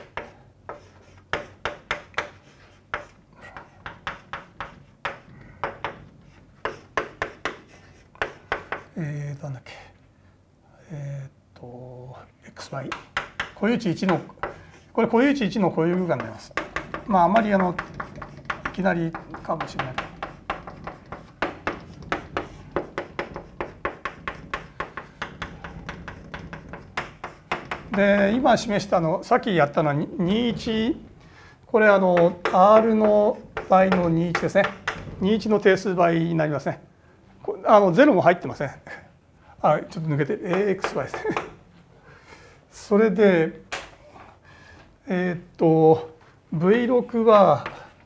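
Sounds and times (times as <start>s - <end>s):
chalk tapping and scratching on chalkboard: 0.0s - 9.0s, 12.9s - 31.0s, 31.9s - 35.8s, 40.4s - 41.6s.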